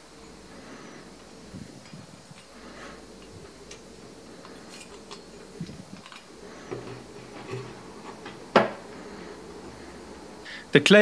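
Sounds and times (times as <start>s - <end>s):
wire ticking and scraping on steel: 0.2s - 8.5s.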